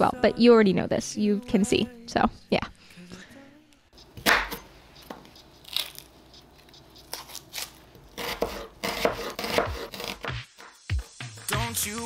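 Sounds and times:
knife chopping on wooden board: 0:04.0 - 0:05.9, 0:07.1 - 0:10.4.

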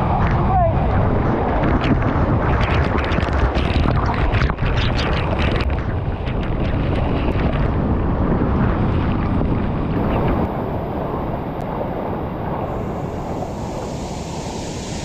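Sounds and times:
waterfall roaring: 0:10.0 - 0:15.0.

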